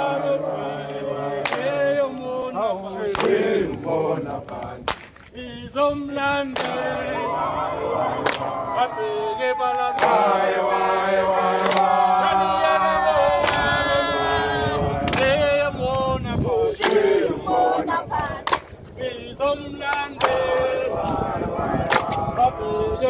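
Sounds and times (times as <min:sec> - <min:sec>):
group singing in unison: 0:00.0 - 0:04.9, 0:05.7 - 0:23.0
sharp hand claps: 0:01.4 - 0:01.7, 0:03.1 - 0:03.4, 0:04.8 - 0:05.2, 0:06.5 - 0:06.8, 0:08.2 - 0:08.5, 0:11.6 - 0:11.9, 0:13.4 - 0:13.7, 0:15.1 - 0:15.3, 0:16.8 - 0:17.0, 0:18.4 - 0:18.7, 0:19.9 - 0:20.4, 0:21.9 - 0:22.2.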